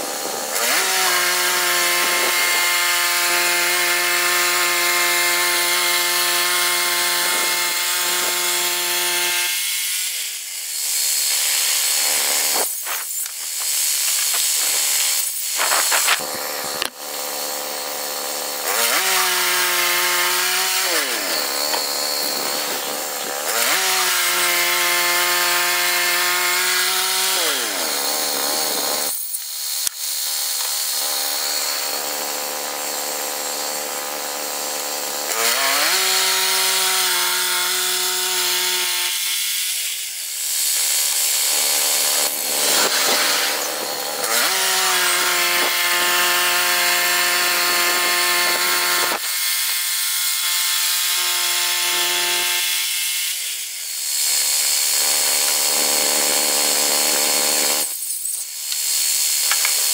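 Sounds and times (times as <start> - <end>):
sawmill engine running: 0.0 - 39.1, 40.0 - 49.6
saw blade hissing in wood: 7.0 - 16.8, 39.6 - 47.2.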